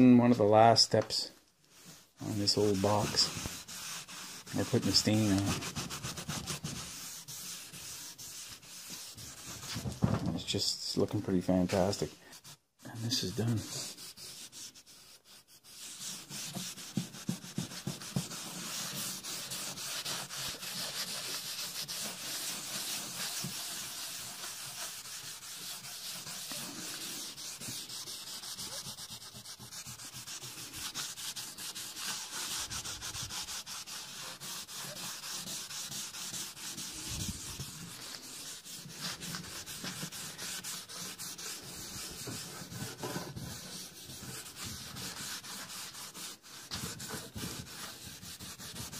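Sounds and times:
rag rubbing on wood: 0:01.7 - 0:10.2, 0:11.5 - 0:48.9.

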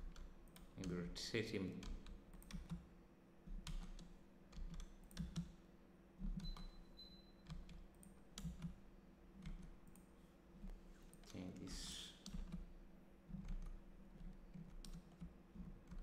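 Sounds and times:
mouse and keyboard clicks: 0:06.2 - 0:08.8.

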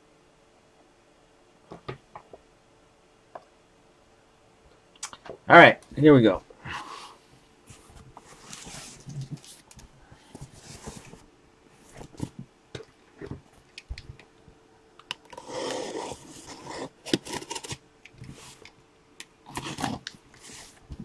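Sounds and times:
box cutter rasping through cardboard: 0:15.3 - 0:17.8.

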